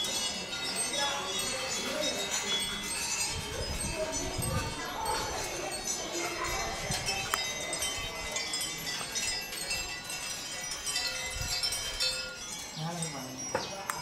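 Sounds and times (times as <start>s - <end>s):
small bells tinkling in wind: 0.0s - 14.0s.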